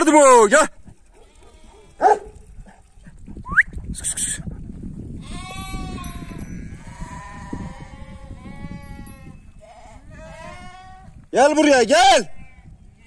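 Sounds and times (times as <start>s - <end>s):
flock bleating: 5.2s - 11.1s.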